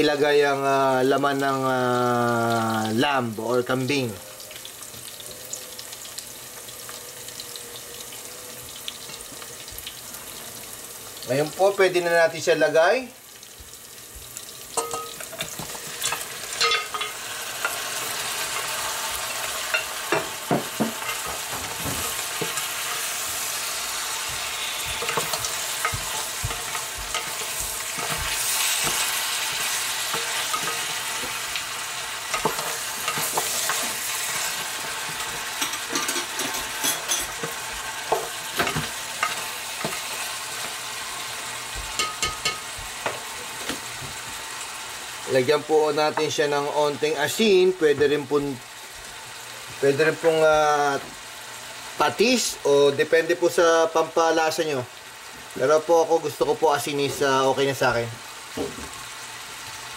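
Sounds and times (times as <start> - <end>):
meat sizzling in hot oil: 0.0 - 59.9
spatula scraping a pot: 21.0 - 31.5.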